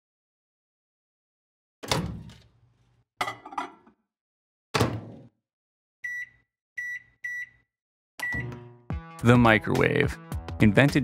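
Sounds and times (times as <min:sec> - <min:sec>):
short keypad beeps: 0:06.0 - 0:07.6, 0:08.2 - 0:08.6.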